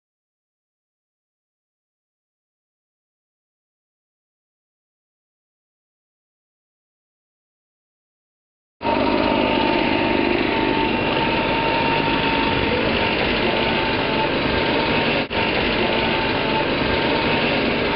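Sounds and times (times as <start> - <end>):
high whine: 8.8 - 17.9
leaf blower engine running: 8.8 - 17.9.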